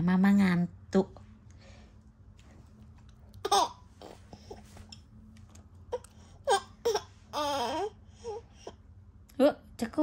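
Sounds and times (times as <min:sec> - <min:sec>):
baby whimpering cries: 0:05.9 - 0:08.8.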